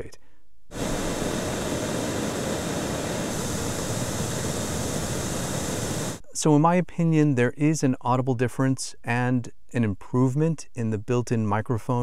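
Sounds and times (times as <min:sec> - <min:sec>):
pink noise hiss: 0:00.7 - 0:06.2.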